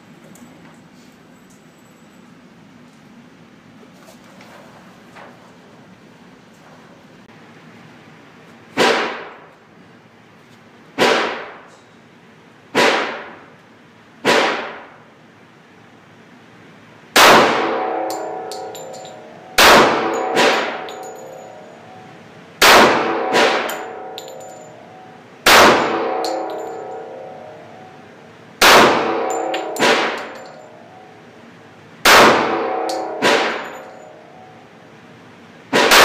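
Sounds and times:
pistol gunshots indoors: 8.8 - 9.5, 11.0 - 11.7, 12.7 - 13.5, 14.2 - 15.0, 17.2 - 21.2, 22.6 - 24.7, 25.4 - 26.9, 28.6 - 30.6, 32.0 - 34.0, 35.7 - 36.0
ringing tone: 18.1 - 22.3, 23.7 - 28.2, 29.3 - 31.4.

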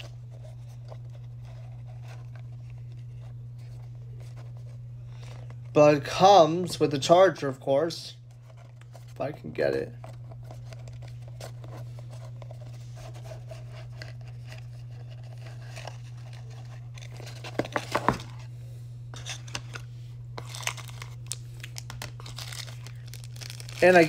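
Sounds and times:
cardboard scraping and rustling: 10.0 - 18.5.

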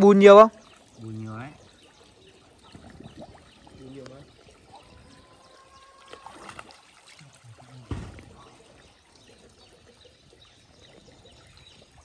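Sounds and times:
water trickling and splashing: 0.0 - 12.0
sudden thump: 7.8 - 8.4.

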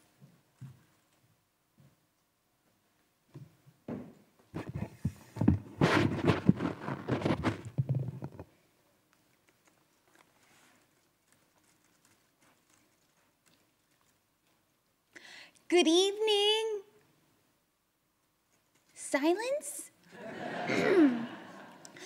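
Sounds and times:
microphone handling bumps and rubbing: 3.9 - 8.5.

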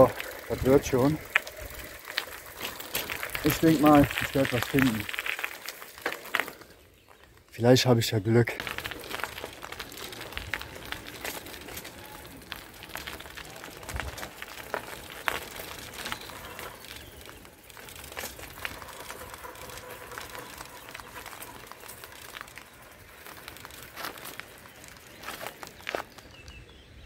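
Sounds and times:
small clicks and crackles: 0.0 - 7.7, 8.4 - 26.7
footsteps outdoors: 0.0 - 27.0
rustling: 8.6 - 26.4.

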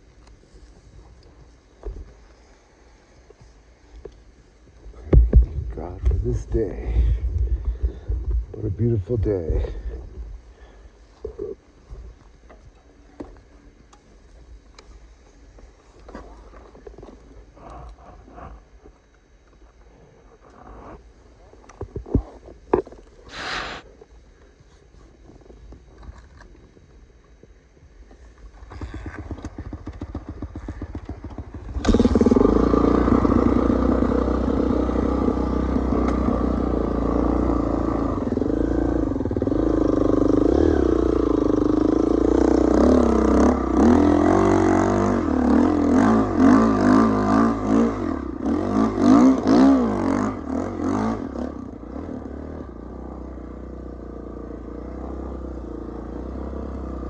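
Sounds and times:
dirt bike engine revving: 29.4 - 57.0.

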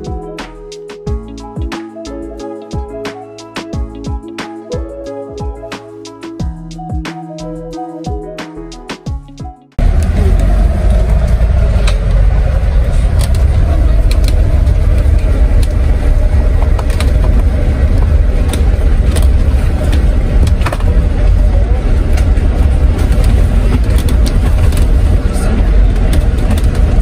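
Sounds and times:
bus engine and road rumble: 9.8 - 27.0.

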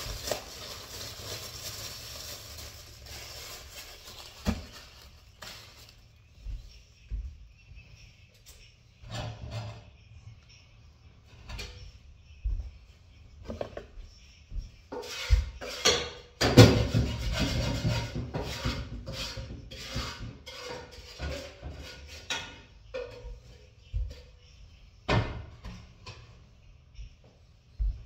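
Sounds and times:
dishes and utensils clattering: 9.0 - 10.0, 14.9 - 24.4.

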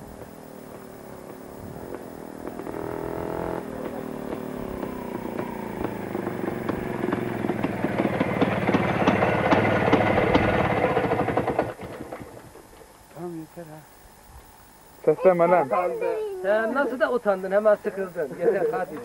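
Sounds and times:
motorcycle engine passing: 0.0 - 12.5.

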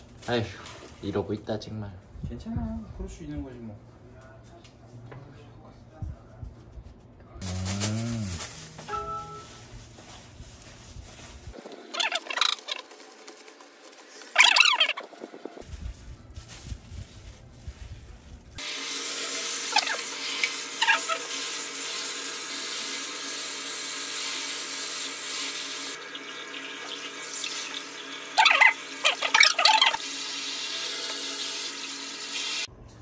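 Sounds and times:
hands rinsing cabbage leaves: 7.4 - 32.7
shower head spraying water: 18.6 - 32.7.

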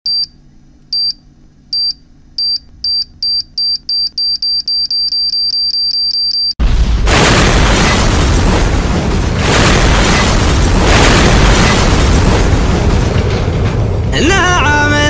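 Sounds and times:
explosion boom: 6.6 - 14.8.

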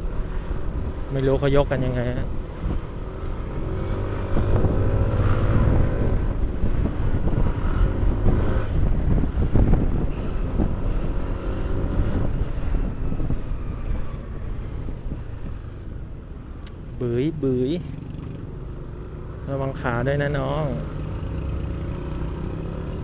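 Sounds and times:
wind rumble on microphone: 0.0 - 16.6.

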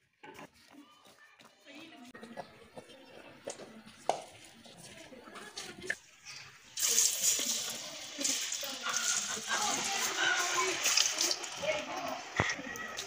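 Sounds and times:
fries sizzling in hot oil: 6.1 - 13.0.

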